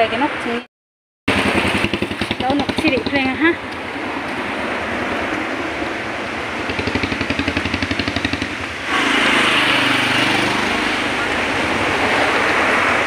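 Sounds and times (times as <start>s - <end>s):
engine and road noise rush: 0.0s - 0.7s, 1.3s - 13.0s
road traffic: 0.0s - 0.7s, 1.3s - 13.0s
engine putt-putt: 1.3s - 4.4s.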